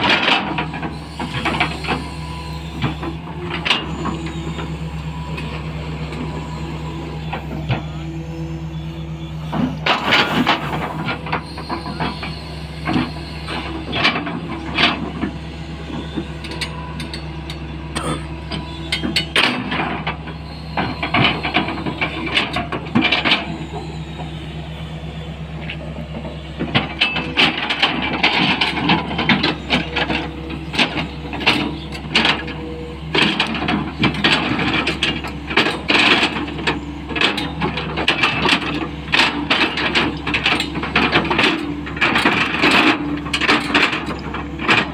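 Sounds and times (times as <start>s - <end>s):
excavator diesel engine running: 0.0s - 44.9s.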